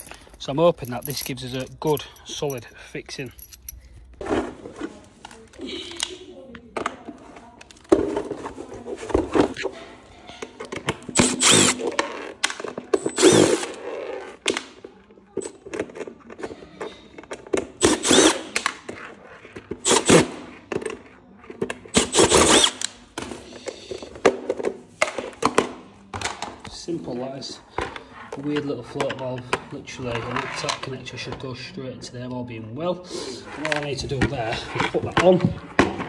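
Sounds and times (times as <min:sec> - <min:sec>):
handling clicks and knocks: 0:00.0 - 0:04.2
impact driver bursts: 0:11.2 - 0:12.0, 0:13.0 - 0:13.8, 0:17.8 - 0:18.6, 0:19.8 - 0:20.4, 0:21.9 - 0:22.9.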